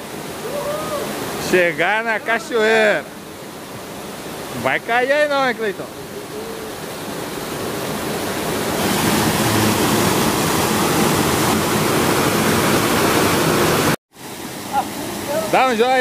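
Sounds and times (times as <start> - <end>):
small waterfall splashing: 0.0 - 16.0.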